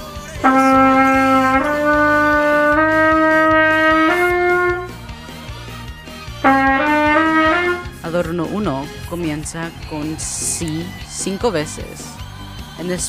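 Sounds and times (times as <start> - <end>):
backing track with steady beat: 0.0 - 13.0
trumpet playing rising notes: 0.4 - 5.1, 6.4 - 8.0.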